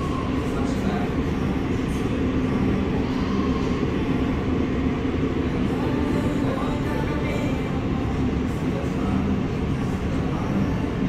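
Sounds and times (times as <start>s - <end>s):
faint voices: 0.0s - 11.0s
restaurant background rumble: 0.0s - 11.0s.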